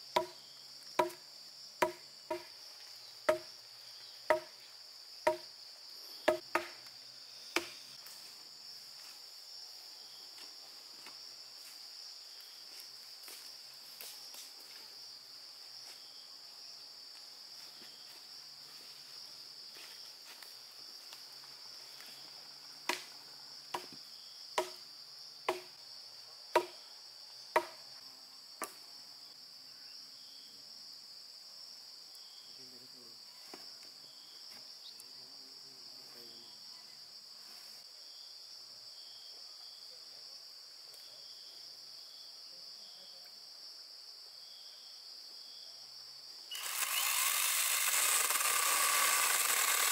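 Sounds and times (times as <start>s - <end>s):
insect chorus: 0.0s - 49.9s
sharp knocks: 1.0s - 1.2s, 1.8s - 2.5s, 3.3s - 3.5s, 4.3s - 4.5s, 6.2s - 6.8s, 24.6s - 24.8s, 26.6s - 26.8s.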